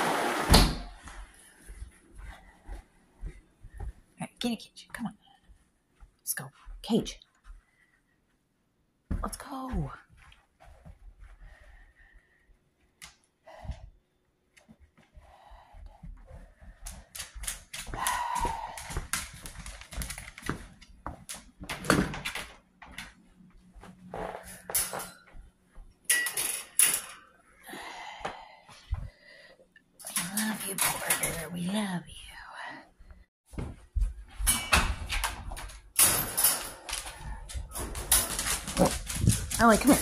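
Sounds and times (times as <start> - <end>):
dog claws clicking on hard floor: 16.6 - 23.2, 35.1 - 40.0
handling knocks and rustling: 33.5 - 40.0
wire crate rattling: 34.5 - 40.0.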